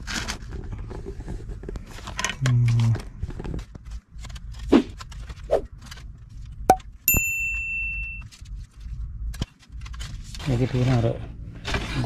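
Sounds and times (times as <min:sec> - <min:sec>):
metal object ringing ding: 0:07.1 - 0:08.2.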